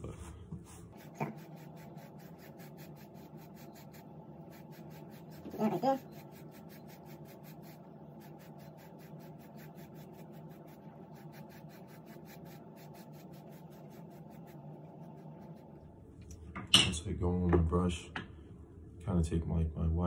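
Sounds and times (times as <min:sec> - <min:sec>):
beard brush scratching through beard: 0:00.8 - 0:15.8.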